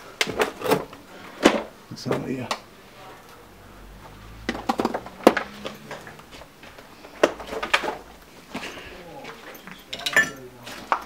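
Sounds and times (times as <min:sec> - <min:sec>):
footsteps crunching over rubble: 0:10.6 - 0:11.0.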